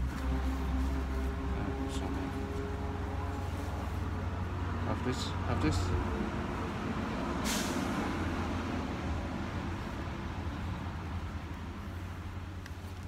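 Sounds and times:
short hiss: 7.4 - 7.9.

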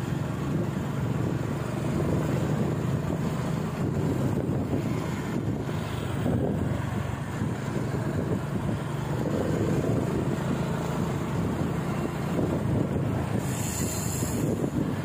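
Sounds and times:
engine running: 0.0 - 15.0.

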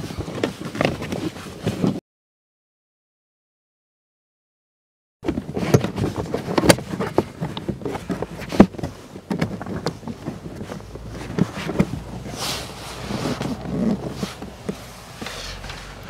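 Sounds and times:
rustling: 5.3 - 16.0.

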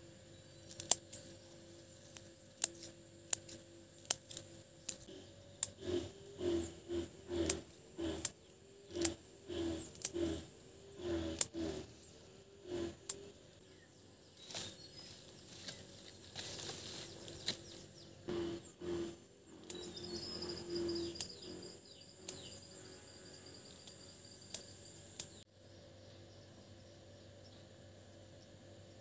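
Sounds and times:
insects calling: 0.0 - 29.0
birds calling: 0.2 - 25.4
stems snapping: 0.7 - 1.4, 2.0 - 6.5, 7.3 - 9.2, 9.8 - 10.4, 11.3 - 11.9, 14.4 - 17.8
leaves rustling: 11.2 - 18.0.

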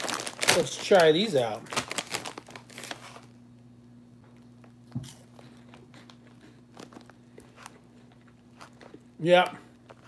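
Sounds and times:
crunching of snacks being eaten: 0.0 - 3.4, 5.0 - 10.0
plastic bag crinkling: 0.0 - 3.4.

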